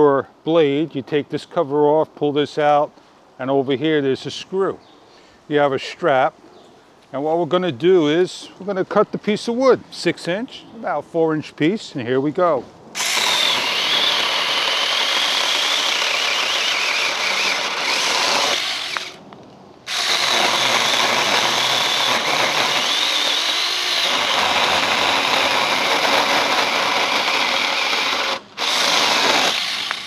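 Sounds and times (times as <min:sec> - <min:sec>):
mini chainsaw cutting branch: 0:13.0 - 0:19.2, 0:19.9 - 0:30.0.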